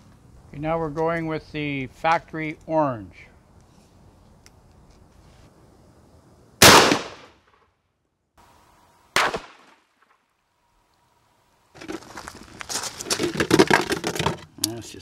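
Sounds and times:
shotgun shot: 6.6s - 7.6s, 9.2s - 9.8s
plastic jug crinkling: 11.8s - 14.5s.

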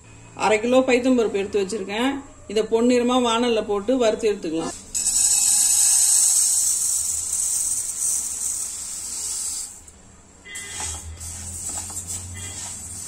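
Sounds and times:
grains poured into a pan: 4.8s - 9.8s.

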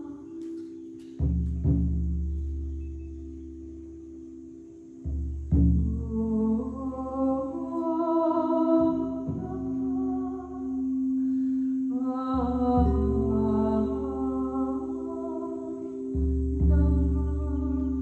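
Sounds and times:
person singing wordless tones: 0.0s - 1.6s, 3.3s - 18.0s
singing bowls ringing: 0.0s - 18.0s.

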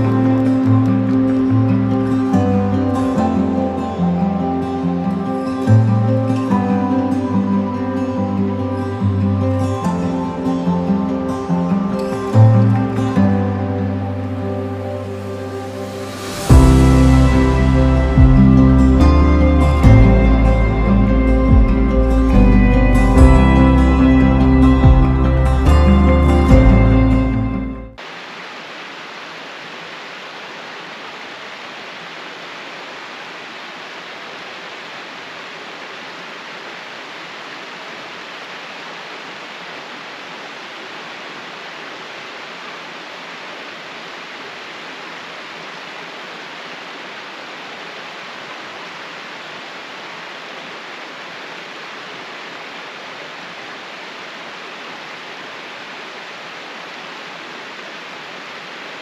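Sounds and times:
creek water rushing over rocks: 28.0s - 59.0s.

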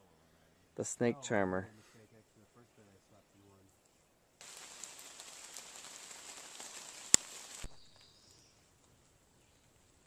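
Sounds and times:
steady hiss: 4.4s - 8.5s
high bird chirp: 7.6s - 8.6s.

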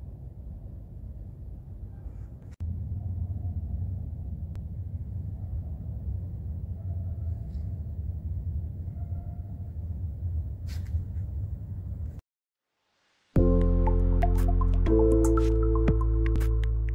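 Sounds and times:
low ambient rumble: 0.0s - 12.2s.

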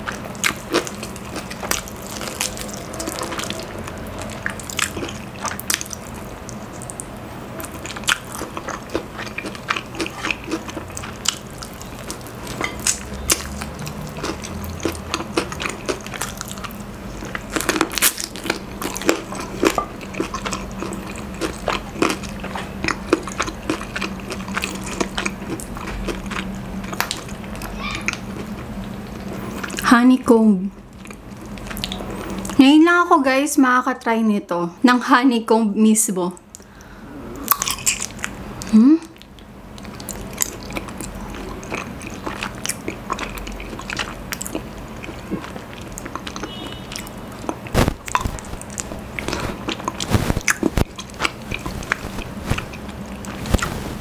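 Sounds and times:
fried chicken skin crunching: 0.0s - 7.1s, 7.7s - 28.6s, 39.8s - 54.0s
chewing mouth sounds: 0.0s - 29.8s, 31.0s - 32.6s, 36.4s - 53.9s.

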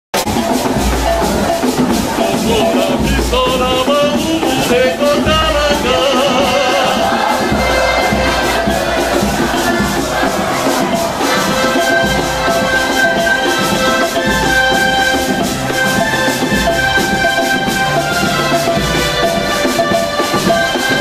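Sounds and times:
band with drums: 0.1s - 21.0s
man singing into microphone: 2.1s - 7.6s.

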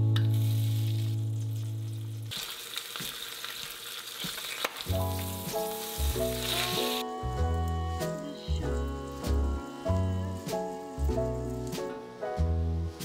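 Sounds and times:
background music with bass: 0.0s - 2.3s, 4.9s - 13.0s
squid sizzling in butter: 0.0s - 7.0s.

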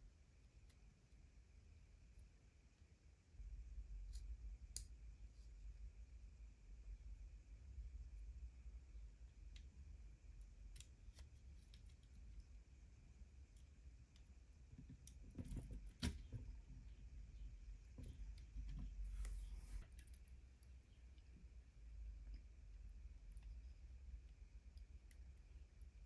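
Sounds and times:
faint plastic clicks and taps: 9.4s - 9.8s, 17.8s - 21.3s.

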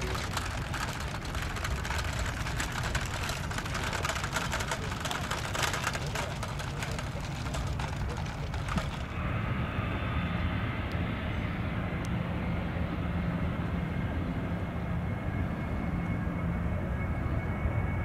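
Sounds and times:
crackly taxiing noise: 0.0s - 9.6s
jet engines at take-off power: 0.0s - 18.0s.

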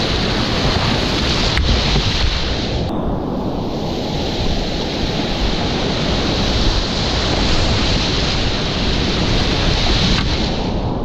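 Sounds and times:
whitewater rapids rushing: 0.0s - 2.9s, 4.2s - 10.8s.

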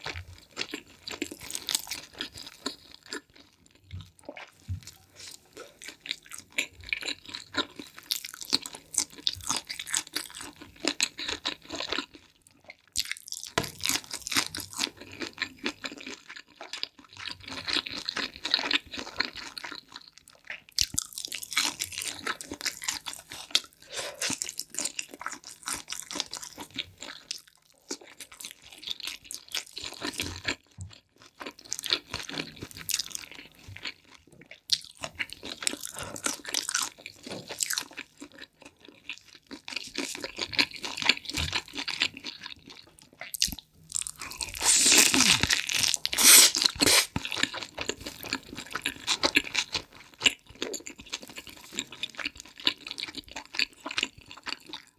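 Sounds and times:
chewing and crunching pizza: 0.0s - 54.9s
wet mouth sounds: 43.1s - 48.1s.

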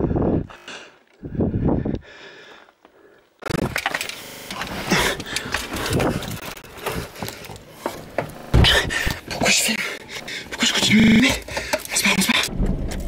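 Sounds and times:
camera being jostled and rubbed: 3.5s - 9.8s.

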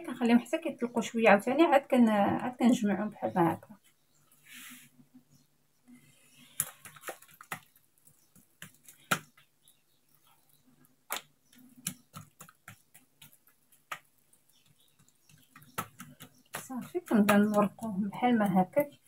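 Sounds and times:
hands slapping dough: 6.4s - 9.8s, 10.9s - 19.0s.

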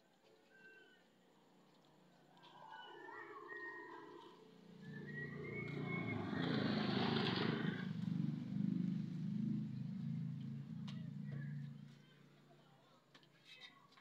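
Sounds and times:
motor vehicle engine running: 4.8s - 12.0s.

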